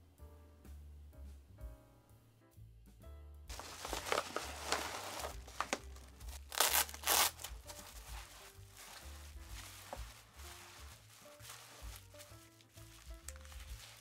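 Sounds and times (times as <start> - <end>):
background music: 0.0 - 14.0
bubble-wrap mailer crinkling: 3.5 - 14.0.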